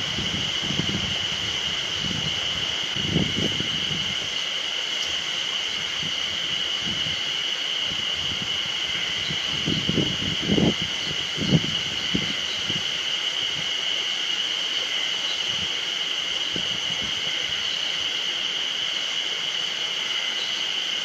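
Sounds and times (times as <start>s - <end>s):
wind rumble on microphone: 0.0s - 4.4s, 5.1s - 13.8s, 15.5s - 15.8s, 16.4s - 17.7s
cicadas buzzing: 0.0s - 21.0s.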